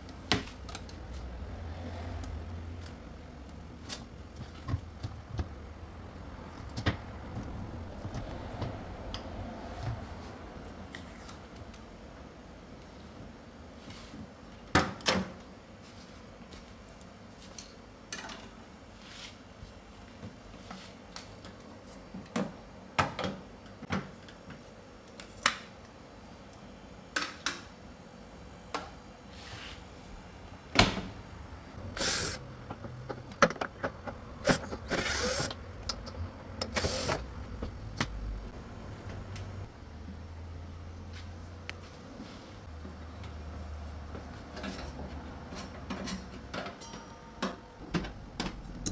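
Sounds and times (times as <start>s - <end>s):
hand tools clicking and scraping: 31.8s - 38.2s.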